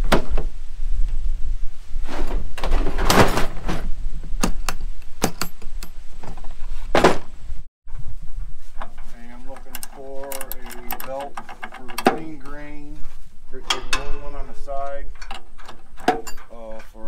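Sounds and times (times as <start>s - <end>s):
clicks and knocks of latches: 9.5s - 12.6s.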